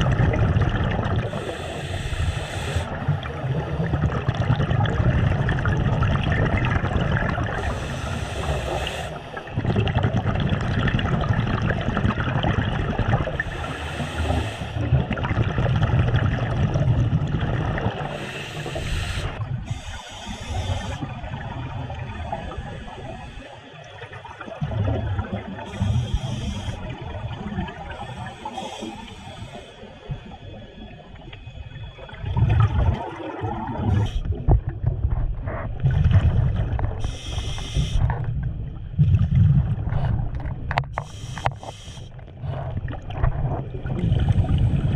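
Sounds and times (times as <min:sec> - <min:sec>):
bubbling rush of exhaled bubbles: 0:00.0 - 0:01.5, 0:02.8 - 0:07.8, 0:09.4 - 0:13.4, 0:14.8 - 0:19.6, 0:24.0 - 0:26.1, 0:31.9 - 0:40.8, 0:42.4 - 0:44.9
scuba regulator hiss: 0:01.3 - 0:02.9, 0:07.6 - 0:09.3, 0:13.4 - 0:14.8, 0:18.1 - 0:21.0, 0:25.7 - 0:26.8, 0:27.9 - 0:30.0, 0:37.0 - 0:38.1, 0:41.0 - 0:42.2.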